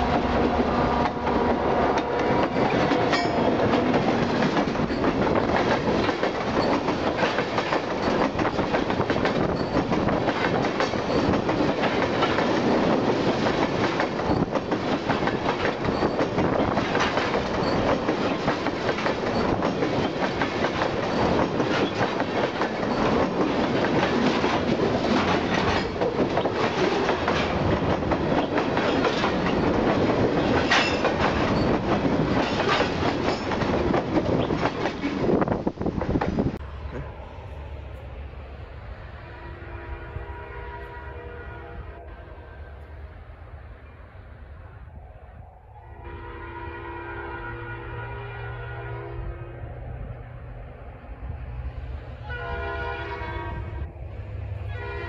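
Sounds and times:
clickety-clack over rail joints: 0.0 - 37.1
steel wheels rumbling on rail: 0.0 - 55.0.

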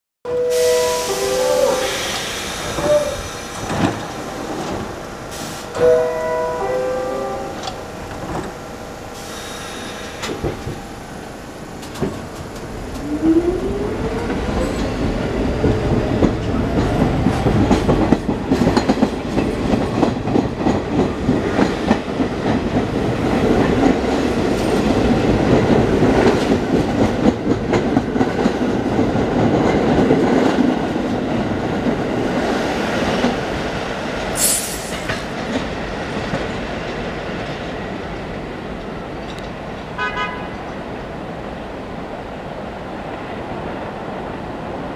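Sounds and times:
train motor whine: 0.5 - 15.3
train wheels clattering over rail joints: 14.2 - 33.5
short high hiss: 34.4 - 35.0.

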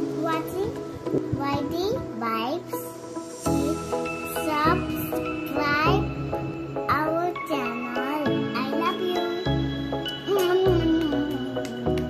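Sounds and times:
girl's gliding voice: 0.0 - 6.2, 6.8 - 9.5, 10.2 - 11.7
tinkling bell-like music: 3.5 - 12.0.

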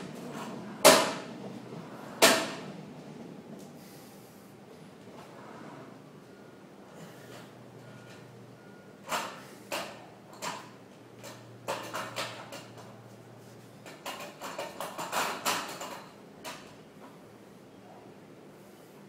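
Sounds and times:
rowing machine seat sliding and knocking: 0.0 - 3.7.

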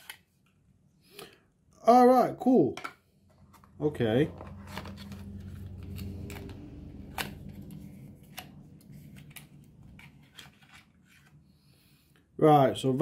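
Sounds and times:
low hum: 3.4 - 11.3.

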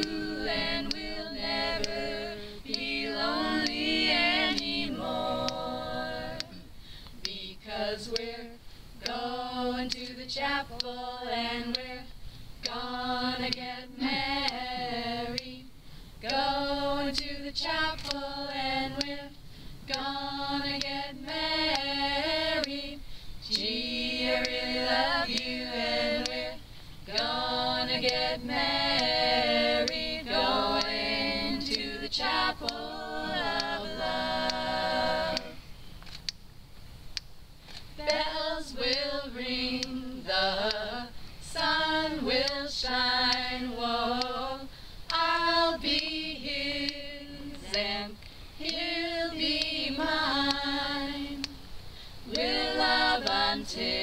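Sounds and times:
women singing a cappella: 0.0 - 35.9, 37.7 - 54.0.

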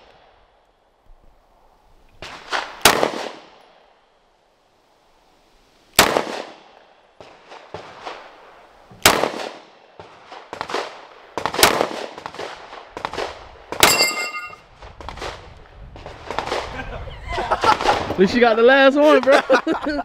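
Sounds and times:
fainter gunshot cracks: 2.5 - 3.5, 6.0 - 6.5, 9.0 - 9.6
pistol shots: 2.8 - 3.5, 6.0 - 6.5, 9.0 - 9.6, 10.6 - 12.5
steel plate ringing when hit: 13.8 - 14.6.

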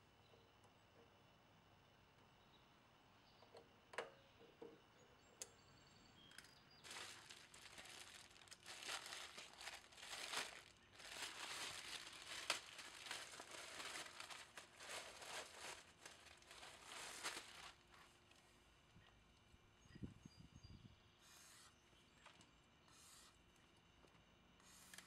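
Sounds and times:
plastic bag crinkling: 6.8 - 18.1.

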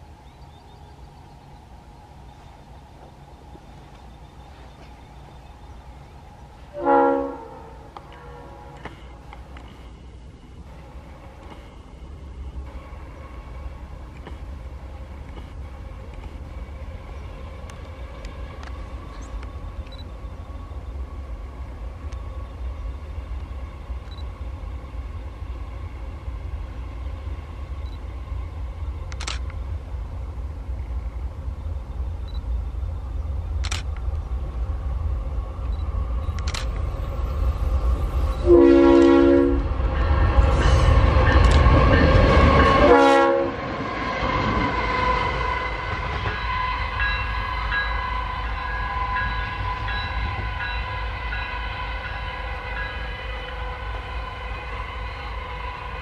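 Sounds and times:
diesel locomotive engine rumble: 0.0 - 56.0
engine whine: 0.0 - 56.0
locomotive air horn: 6.7 - 8.9, 38.4 - 39.7, 42.5 - 43.7, 44.8 - 56.0.

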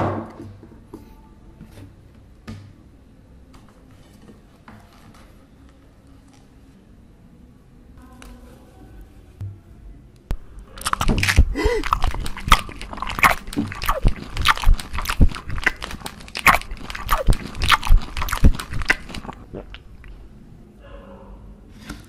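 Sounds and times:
crunching bites and chewing: 10.3 - 20.2.

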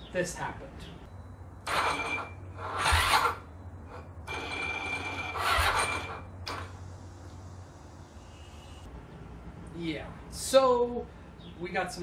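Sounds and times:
electric starter cranking engine: 1.6 - 6.8.

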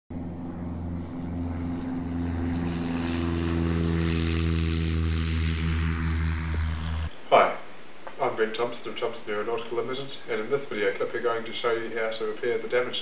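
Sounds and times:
propeller aircraft engine running: 0.1 - 7.1.

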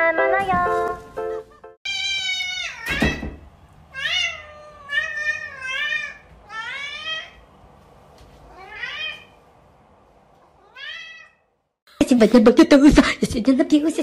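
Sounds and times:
cat meowing: 1.9 - 3.2, 3.9 - 7.4, 8.5 - 9.4, 10.5 - 11.5.

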